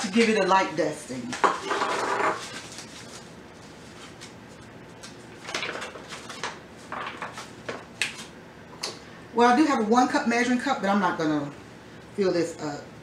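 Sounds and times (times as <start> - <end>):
paper bag crinkling and rustling: 1.9 - 4.4.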